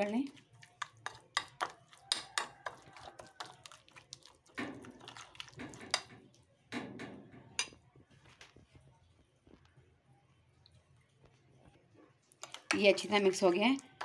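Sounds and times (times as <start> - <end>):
spoon stirring thick marinade: 0.0 - 6.5, 12.3 - 14.0.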